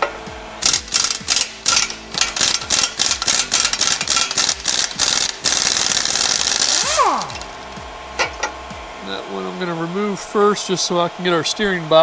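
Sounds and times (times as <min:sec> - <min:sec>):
pneumatic impact wrench: 0:00.0 - 0:08.5.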